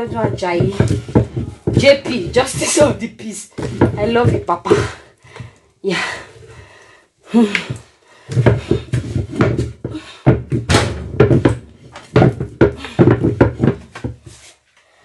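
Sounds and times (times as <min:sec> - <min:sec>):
wooden pestle thumping in mortar: 0:00.0 - 0:05.0, 0:07.6 - 0:14.3.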